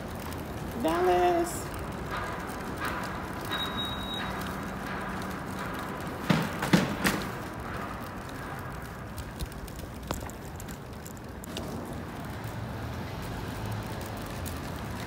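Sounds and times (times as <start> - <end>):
steady background noise: 0.0 - 15.0
sharp knocks: 2.0 - 8.7.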